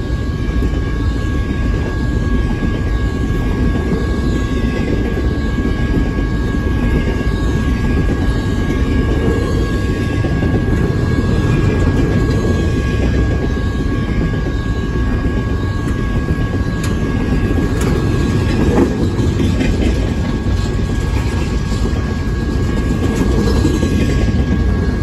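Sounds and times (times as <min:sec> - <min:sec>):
train wheels rumbling on rail: 0:00.0 - 0:25.0.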